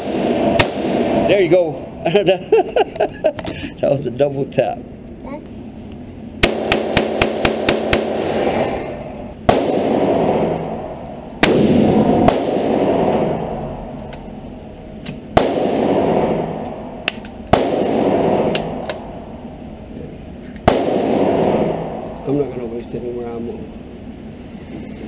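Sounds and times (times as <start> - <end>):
gunshots echoing indoors: 0.0 - 1.6, 6.4 - 14.3, 15.3 - 19.4, 20.6 - 22.5.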